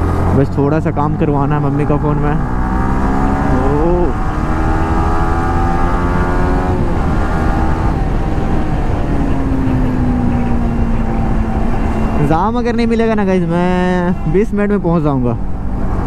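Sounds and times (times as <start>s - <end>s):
motorcycle engine accelerating: 0.0s - 14.3s
wind rumbling on microphone: 2.4s - 12.3s.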